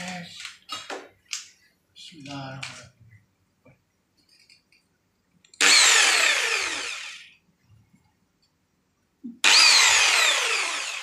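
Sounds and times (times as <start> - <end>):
jigsaw motor winding down: 5.6 - 7.3, 9.4 - 11.0.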